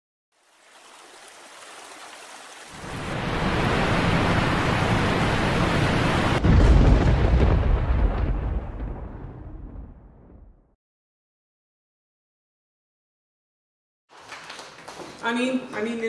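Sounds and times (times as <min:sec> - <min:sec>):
deep boom: 0:06.2 - 0:10.8.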